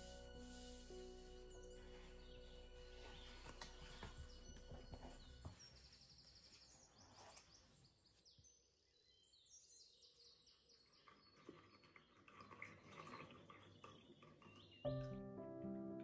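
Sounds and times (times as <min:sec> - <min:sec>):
soft background music: 0:00.0 - 0:06.6, 0:14.8 - 0:16.0
faint birdsong chirps: 0:00.0 - 0:16.0.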